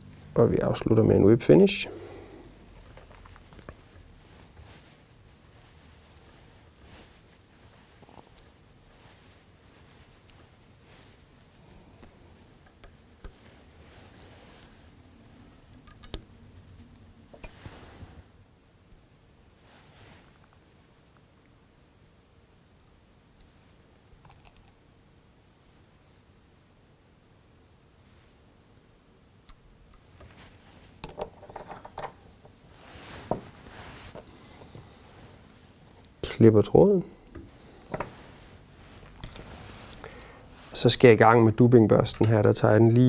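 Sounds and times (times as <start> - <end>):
light thread rustles: 2.1 - 18.5, 29.9 - 41.2.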